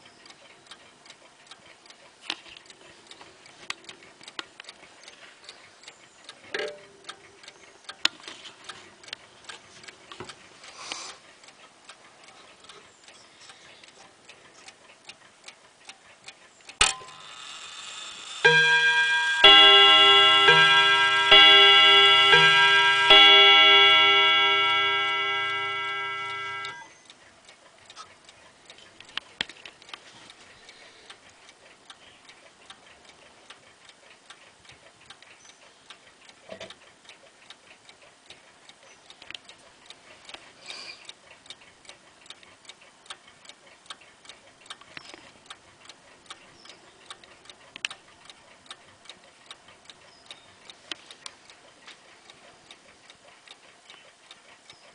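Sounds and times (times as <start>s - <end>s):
clock ticking: 0.0s - 54.9s
clock gong chord ringing: 18.4s - 26.9s.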